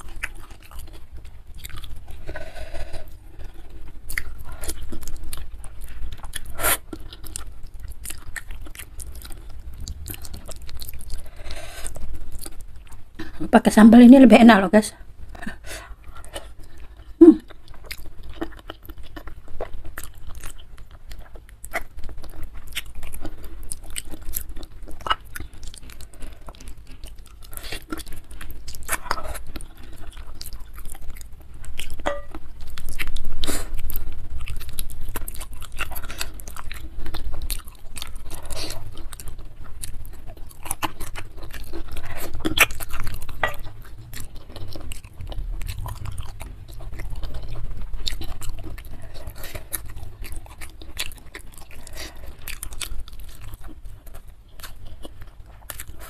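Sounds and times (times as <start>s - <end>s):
chewing and wet mouth sounds: 0.0s - 56.0s.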